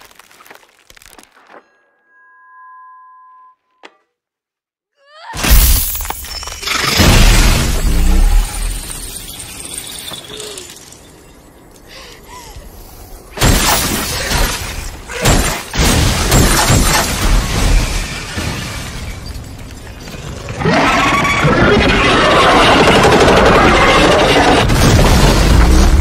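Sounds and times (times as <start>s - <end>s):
ice shattering and crumbling: 0.0s - 1.5s, 5.4s - 11.2s.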